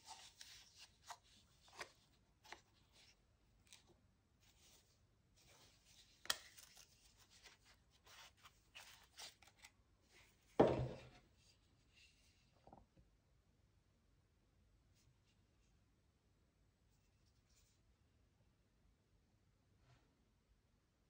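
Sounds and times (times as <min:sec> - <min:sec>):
small knock: 0:10.6 - 0:11.1.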